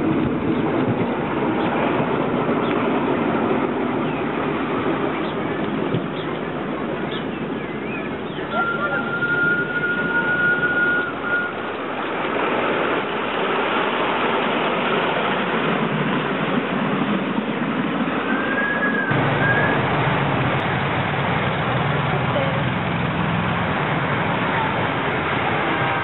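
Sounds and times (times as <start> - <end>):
small train wheels rumbling on rails: 0.0 - 26.0
locomotive whistle: 7.7 - 11.8, 18.2 - 19.9.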